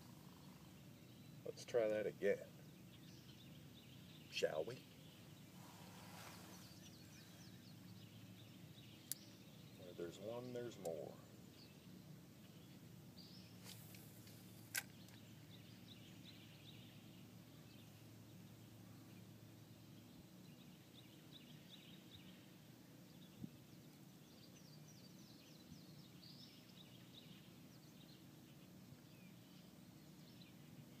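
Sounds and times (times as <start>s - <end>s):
faint bird chirps: 0.0s - 31.0s
low background hum: 0.0s - 31.0s
sharp click: 14.7s - 15.2s.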